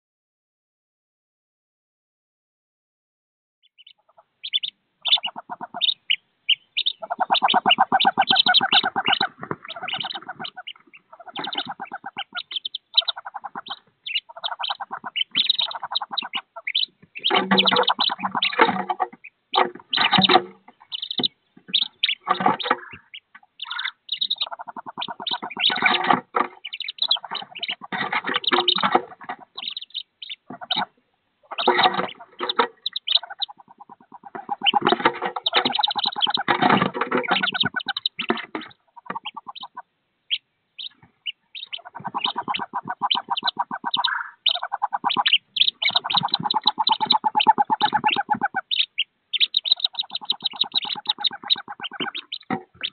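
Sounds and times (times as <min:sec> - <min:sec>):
ducklings peeping: 0:03.7 - 0:52.9
lower rasping calls: 0:03.7 - 0:52.9.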